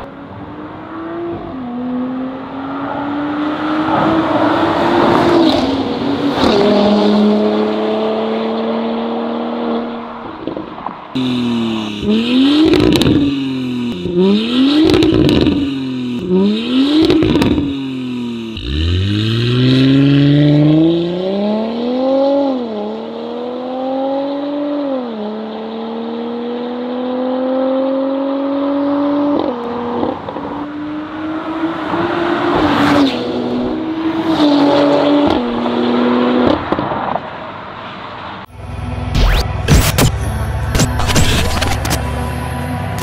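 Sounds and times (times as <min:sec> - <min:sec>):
car engine accelerating: 0:11.2 - 0:37.0.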